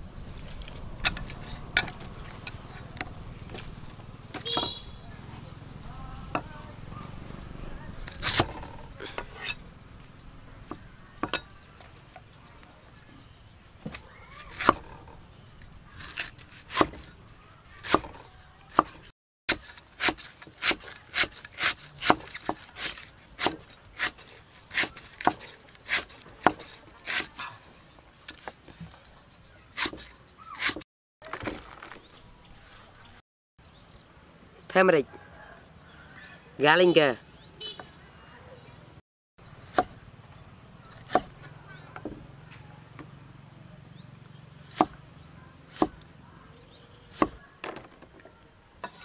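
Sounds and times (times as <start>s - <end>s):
cleaver chopping on wooden block: 4.3s - 4.8s, 13.8s - 14.9s, 16.0s - 17.1s, 17.8s - 27.4s, 29.8s - 30.8s, 39.7s - 40.0s, 40.9s - 42.2s, 44.7s - 45.0s, 45.7s - 46.0s, 47.1s - 47.9s.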